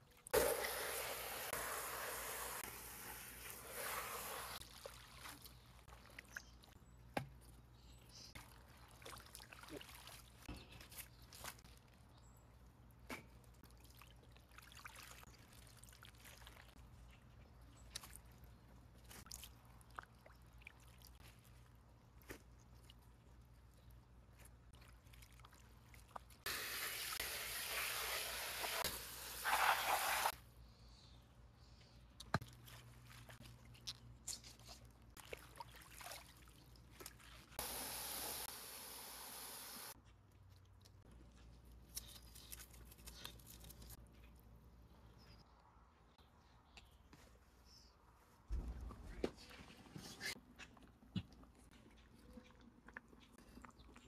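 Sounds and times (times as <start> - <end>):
hose nozzle spraying into metal bowl: 0.4 - 4.6, 26.5 - 30.3
water splashing: 8.4 - 11.6, 35.2 - 38.8.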